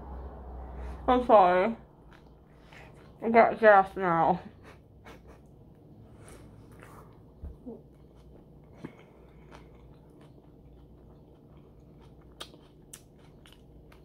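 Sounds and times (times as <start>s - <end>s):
low steady hum: 0.0s - 14.0s
person chewing: 2.0s - 3.2s, 5.7s - 14.0s.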